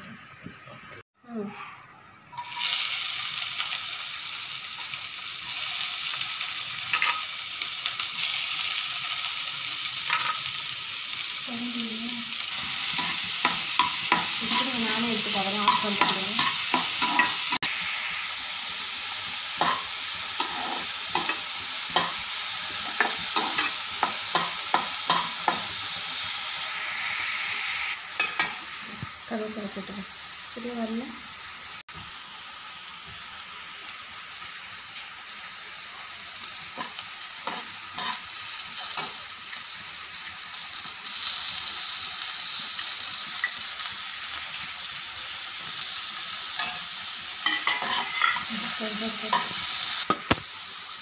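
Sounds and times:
onions sizzling in oil: 0:00.2 - 0:51.0
spatula scraping and tapping pan: 0:12.9 - 0:17.5, 0:19.6 - 0:22.2, 0:22.8 - 0:25.7, 0:47.4 - 0:48.5.

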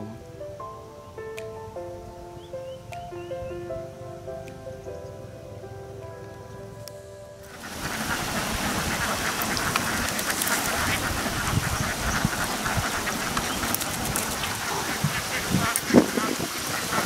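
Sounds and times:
ducks quacking: 0:07.5 - 0:17.0.

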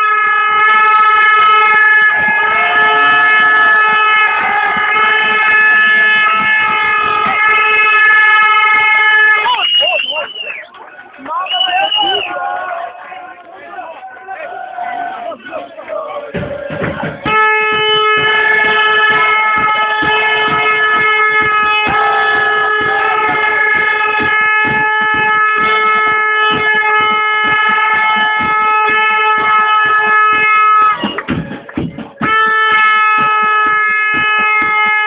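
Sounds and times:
horn sounding steady note: 0:00.0 - 0:10.6, 0:15.4 - 0:31.2, 0:32.2 - 0:35.0.

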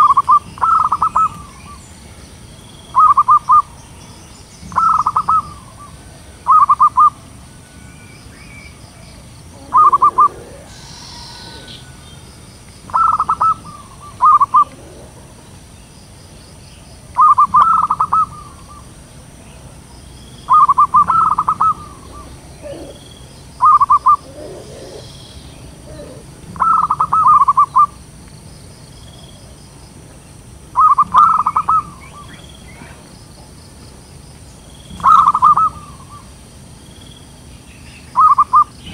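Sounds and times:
dove cooing: 0:00.0 - 0:01.8, 0:03.0 - 0:03.7, 0:04.7 - 0:07.3, 0:08.9 - 0:15.7, 0:17.2 - 0:19.9, 0:20.5 - 0:28.0, 0:30.8 - 0:33.5, 0:35.0 - 0:36.3, 0:38.2 - 0:38.9
faint bird chirps: 0:00.0 - 0:29.6, 0:30.8 - 0:38.9.

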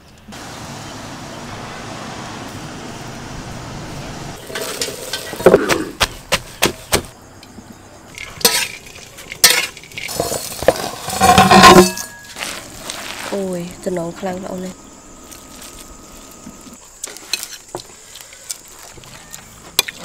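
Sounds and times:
ringing clatter of dishes: 0:11.1 - 0:12.4.

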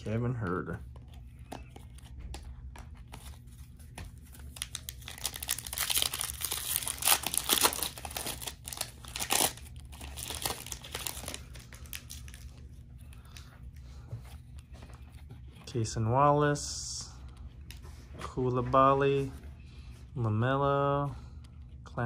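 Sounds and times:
plastic wrapper tearing and crinkling: 0:04.3 - 0:12.6.

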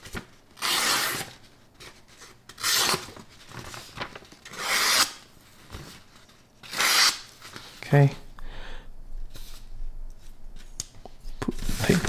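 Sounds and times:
paper rustling: 0:01.1 - 0:06.5, 0:11.5 - 0:12.0
knife slicing paper: 0:06.6 - 0:07.3.

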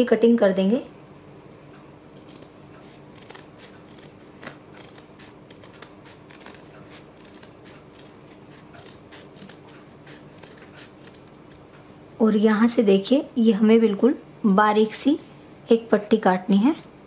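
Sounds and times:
scissors snipping stiff fabric: 0:02.2 - 0:11.8.

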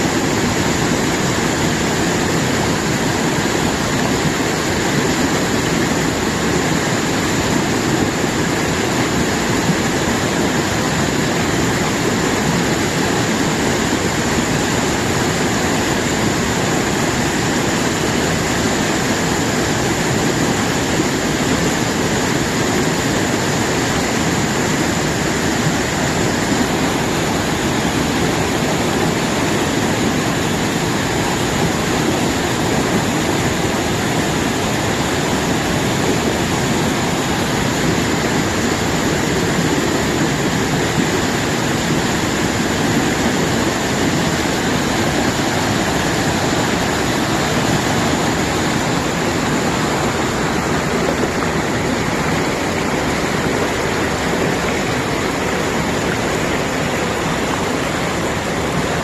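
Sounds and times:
stream rushing over boulders: 0:00.0 - 0:59.0.

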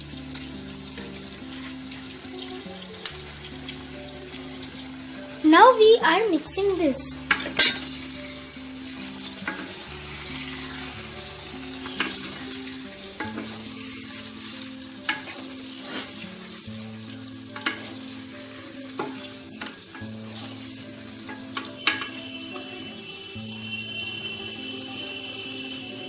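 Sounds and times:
vegetables sizzling in oil: 0:00.0 - 0:26.0
spatula clicking against pan: 0:17.6 - 0:18.0.

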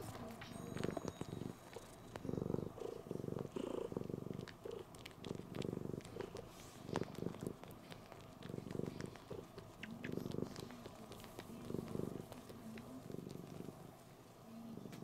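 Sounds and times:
cat purring: 0:00.0 - 0:15.0
cat suckling clicks and smacks: 0:03.9 - 0:13.7.

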